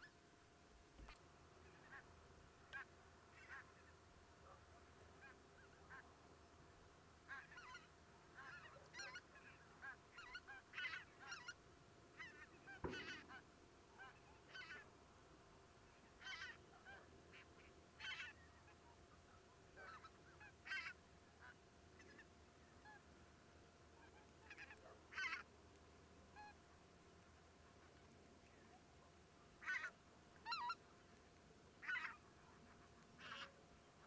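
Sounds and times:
distant birds calling: 0:07.2 - 0:23.2, 0:23.9 - 0:25.5.

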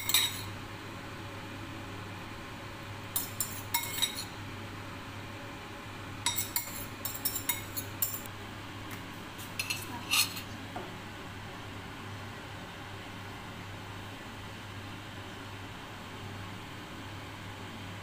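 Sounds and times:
utensil clinking on plates: 0:00.0 - 0:00.5, 0:03.2 - 0:04.3, 0:06.3 - 0:08.3, 0:09.6 - 0:10.5.

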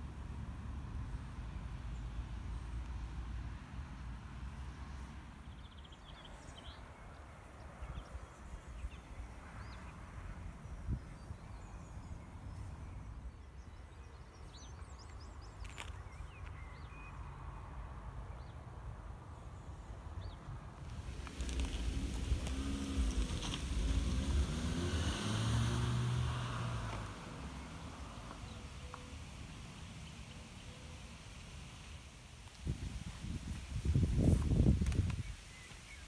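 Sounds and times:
wind rumble on microphone: 0:20.8 - 0:27.2, 0:32.6 - 0:35.7.

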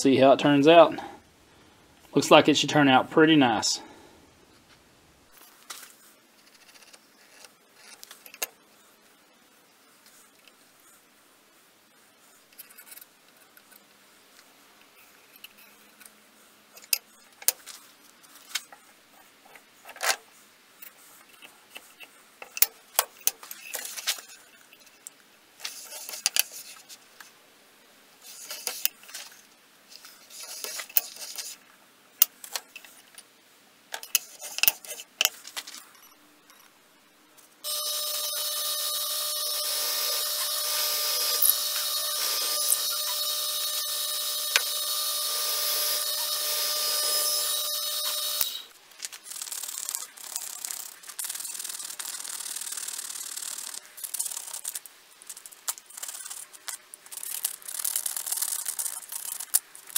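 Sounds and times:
drill press whining: 0:37.7 - 0:48.7.

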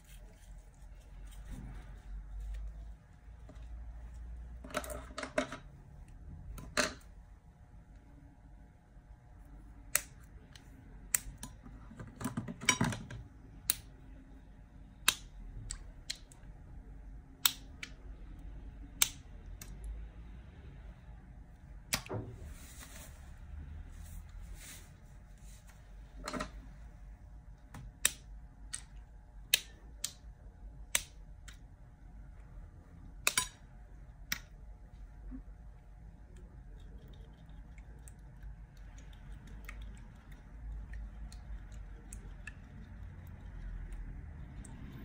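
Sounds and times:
soft rustling and handling: 0:00.0 - 0:04.6, 0:22.3 - 0:27.2.

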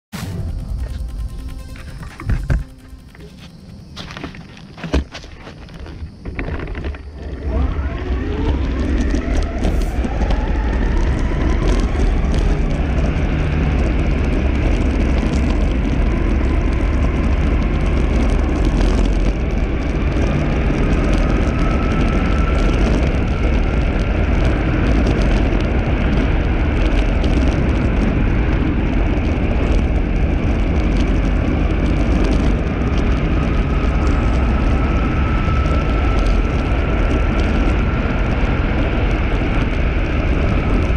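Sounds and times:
wheels rumbling on asphalt: 0:00.1 - 0:40.9
electric motors whining: 0:00.2 - 0:27.7.

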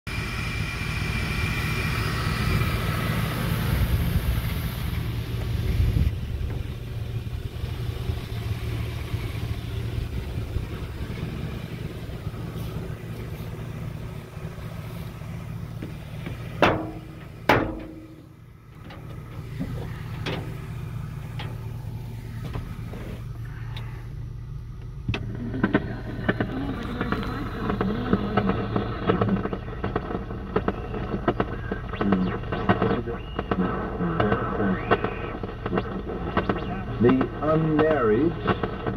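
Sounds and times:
truck engine idling: 0:00.1 - 0:38.9
sharp knocks: 0:15.8 - 0:20.6
radio broadcast: 0:25.2 - 0:38.9.

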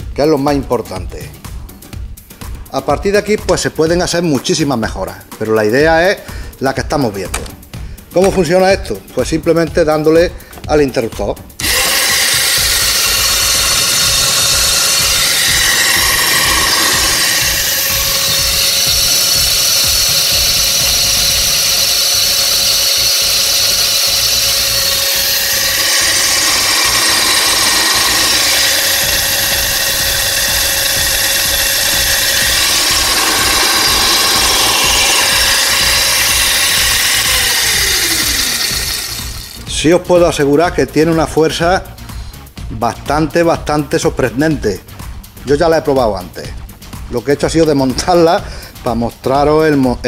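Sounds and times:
electric motor whine: 0:11.6 - 0:39.6.

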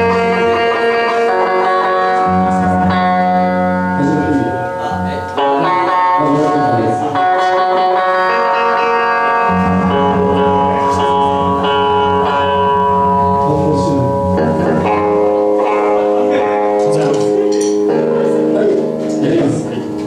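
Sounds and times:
guitar chords ringing: 0:00.0 - 0:20.0
bass note: 0:09.5 - 0:15.9.

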